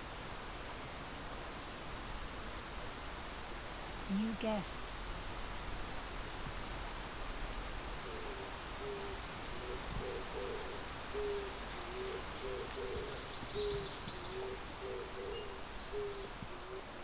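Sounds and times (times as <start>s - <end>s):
pigeon cooing: 8.1s - 16.9s
small songbird chirping: 8.8s - 16.4s.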